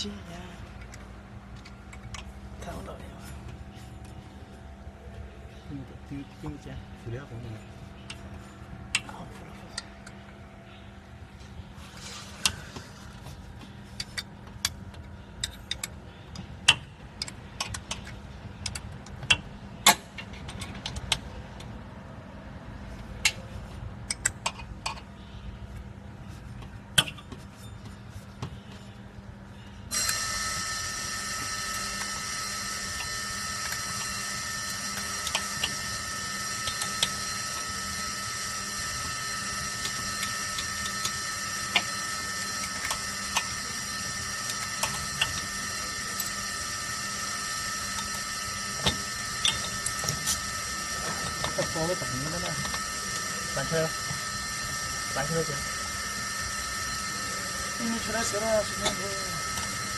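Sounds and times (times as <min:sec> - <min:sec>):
low steady hum: 0:00.0 - 0:59.9
whirring with high whine: 0:26.6 - 0:59.9.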